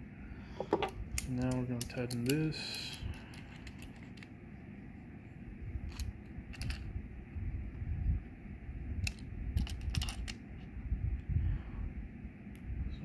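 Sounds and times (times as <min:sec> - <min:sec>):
metal fittings clinking: 0:00.7 - 0:04.2.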